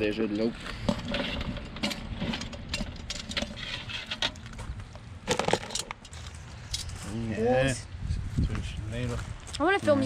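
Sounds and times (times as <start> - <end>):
lobsters dropping into plastic bowl: 5.3 - 6.0.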